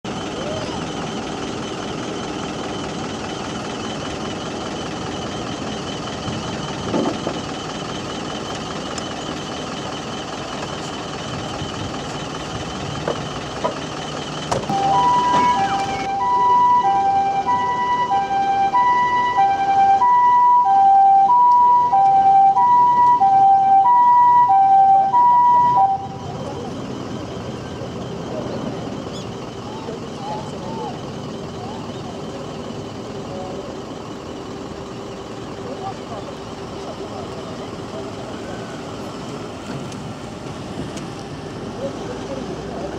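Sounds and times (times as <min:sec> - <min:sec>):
two-tone ambulance siren: 0:00.1 - 0:32.4, 0:38.0 - 0:39.6
helicopter whining: 0:00.1 - 0:40.5.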